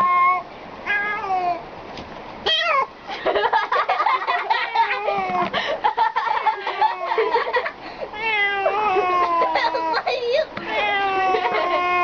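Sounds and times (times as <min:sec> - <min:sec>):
cat meowing: 0:00.0 - 0:01.6, 0:08.2 - 0:10.0, 0:10.6 - 0:12.0.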